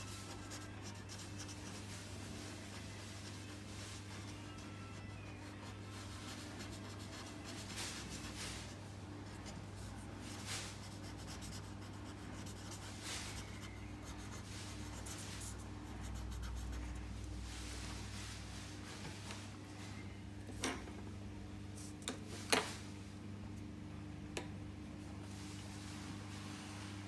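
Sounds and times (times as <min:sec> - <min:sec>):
marker scribbling on paper: 0:00.0 - 0:01.9, 0:09.2 - 0:17.0.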